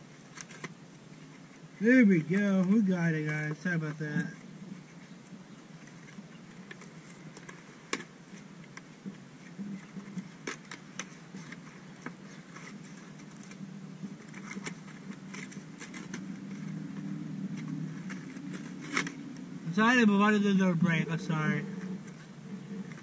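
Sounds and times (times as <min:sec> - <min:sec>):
packaging crackling and rustling: 0:04.4 - 0:19.6.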